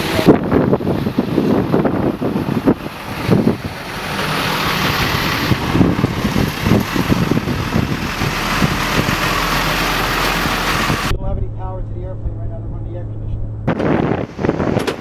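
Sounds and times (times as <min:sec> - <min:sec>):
steady engine noise: 0:00.0 - 0:15.0
wind buffeting microphone: 0:00.0 - 0:15.0.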